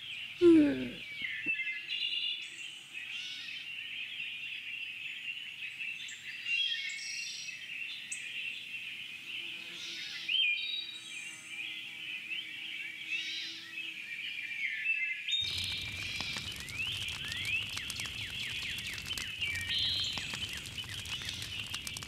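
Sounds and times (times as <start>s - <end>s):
birds chirping: 15.4s - 22.0s.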